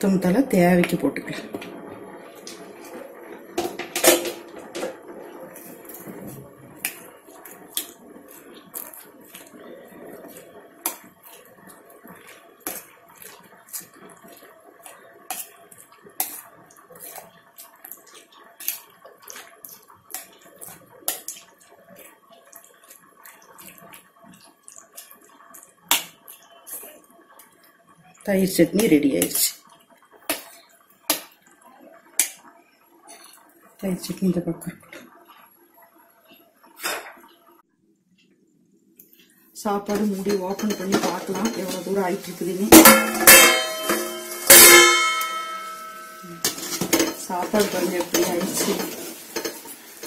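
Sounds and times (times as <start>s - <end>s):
wet stirring: 5.5s - 27.8s, 39.0s - 50.0s
spoon clinking against steel bowl: 40.0s - 41.9s, 42.7s - 49.6s.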